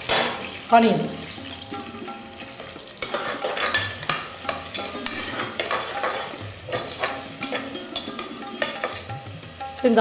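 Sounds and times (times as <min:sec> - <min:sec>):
onions sizzling in oil: 0:00.0 - 0:10.0
metal ladle scraping pot: 0:01.8 - 0:09.3.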